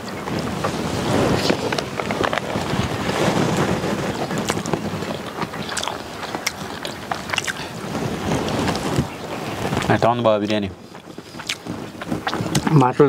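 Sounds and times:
wind rumbling on microphone: 0.0s - 13.0s
small clicks and ticks: 1.7s - 7.7s.

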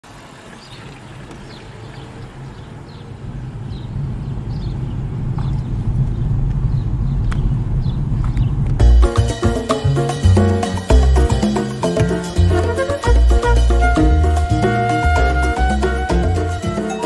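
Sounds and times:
car engine and road rumble: 0.4s - 9.4s.

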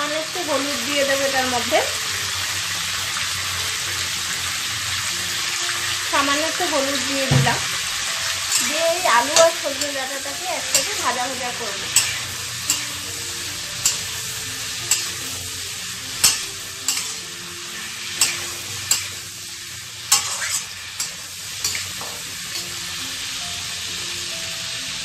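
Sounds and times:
food sizzling in hot oil: 0.0s - 25.0s
spatula scraping metal pan: 8.3s - 22.7s.

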